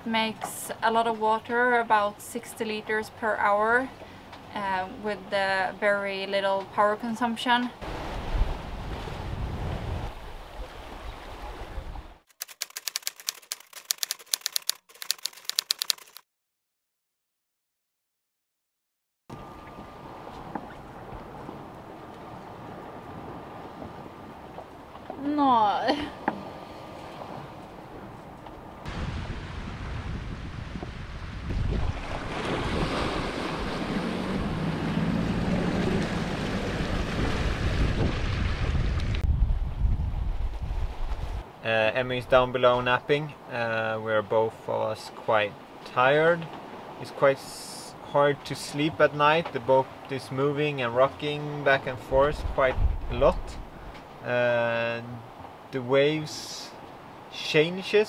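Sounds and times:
sea noise: 0:01.4 - 0:16.2, 0:19.3 - 0:58.0
breaking waves and wake: 0:06.7 - 0:12.2, 0:19.3 - 0:58.0
wind on microphone: 0:07.8 - 0:12.2, 0:27.2 - 0:41.5, 0:52.1 - 0:54.0
keyboard typing clicks: 0:12.3 - 0:16.2.

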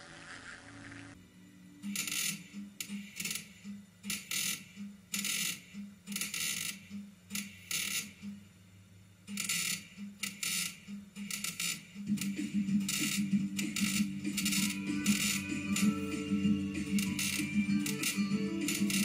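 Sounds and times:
welder arc crackling: 0:09.3 - 0:19.0.

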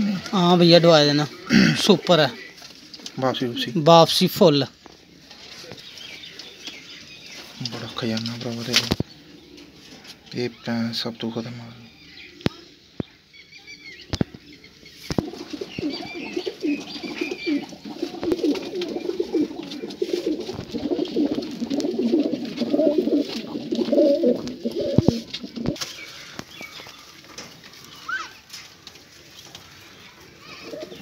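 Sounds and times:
pigeons cooing: 0:15.1 - 0:27.4, 0:29.7 - 0:31.0.

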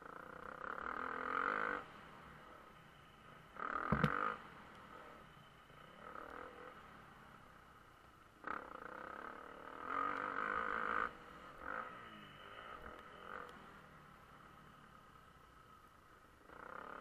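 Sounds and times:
motocross bike engine revving: 0:08.4 - 0:13.5.

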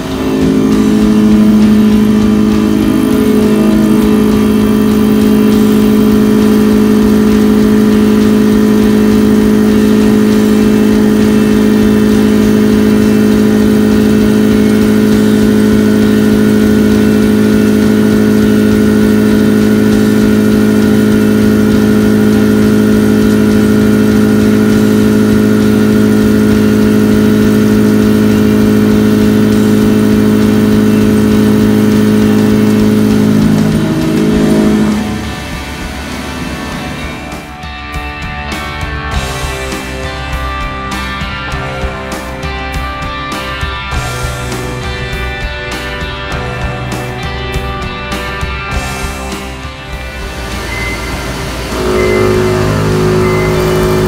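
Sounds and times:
milling machine cutting metal: 0:00.0 - 0:37.5, 0:49.1 - 0:54.0.

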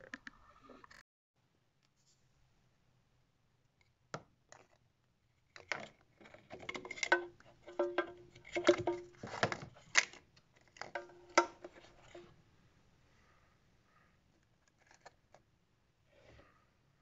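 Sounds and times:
plastic bottle crackling: 0:06.4 - 0:12.2.

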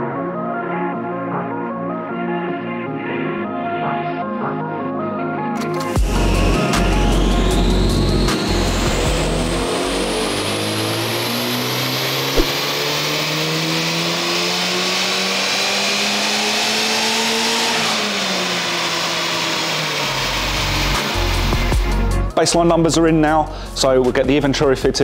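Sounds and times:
car engine revving at full throttle: 0:05.9 - 0:22.0
brief click: 0:12.4 - 0:12.7.

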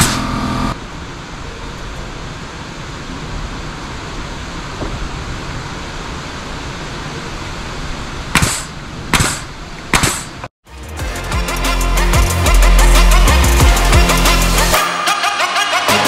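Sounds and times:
outdoor background noise: 0:00.0 - 0:10.5
nailing strikes into wood: 0:08.4 - 0:10.3
music: 0:10.6 - 0:16.0.

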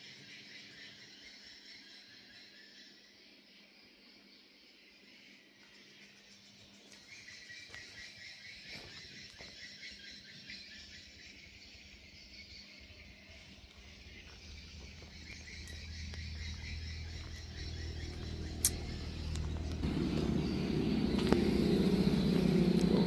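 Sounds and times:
insects chirring: 0:00.0 - 0:23.0
low rumble: 0:15.1 - 0:23.0
sharp click: 0:18.6 - 0:19.0.

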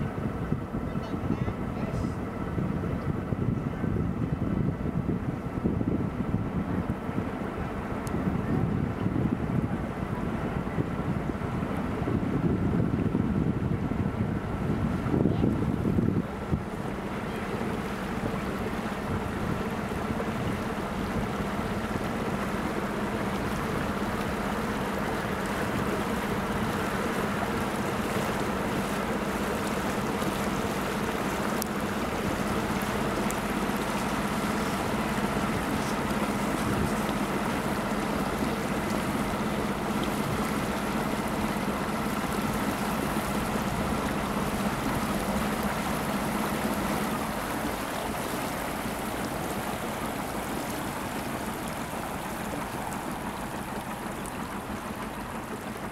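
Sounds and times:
wind and water hiss: 0:00.0 - 0:55.9
bridge machinery humming: 0:15.6 - 0:55.9.

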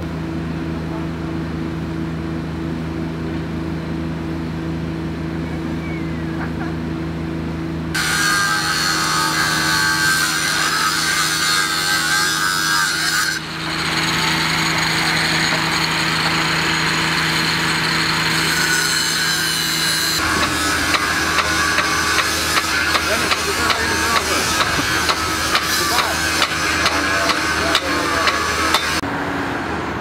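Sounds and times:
engine hum: 0:00.0 - 0:30.0
power saw grinding into road: 0:08.0 - 0:29.0.

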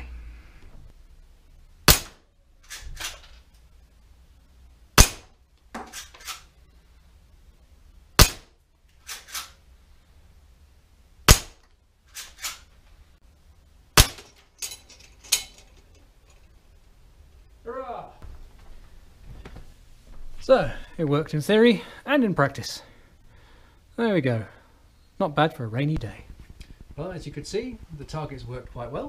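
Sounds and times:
air rifle shots: 0:01.8 - 0:03.2, 0:05.0 - 0:06.4, 0:08.2 - 0:09.6, 0:11.2 - 0:11.6, 0:14.0 - 0:14.4
pellets hitting metal spoon targets: 0:01.8 - 0:03.2, 0:08.2 - 0:08.5, 0:14.0 - 0:15.8.

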